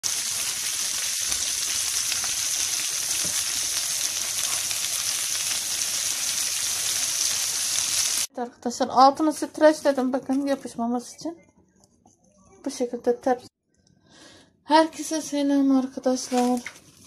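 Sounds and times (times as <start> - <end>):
food sizzling in oil: 0.0 - 8.3.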